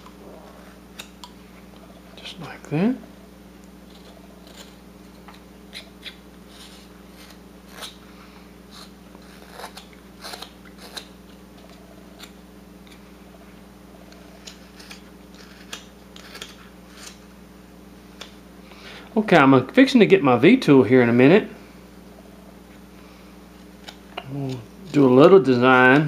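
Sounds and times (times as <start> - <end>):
faint hum: 0.0 - 26.0
knife scraping wood: 3.8 - 8.0, 8.7 - 13.0, 14.0 - 17.2.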